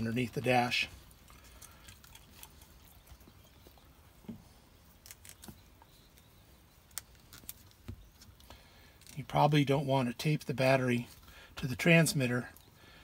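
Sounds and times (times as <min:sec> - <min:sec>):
wires rustling: 0:00.0 - 0:09.6.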